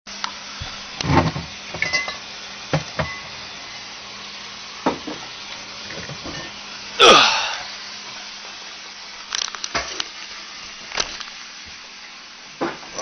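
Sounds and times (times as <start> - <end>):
refrigerator hum: 0.1 - 13.0
glass bottles clinking: 1.8 - 2.2.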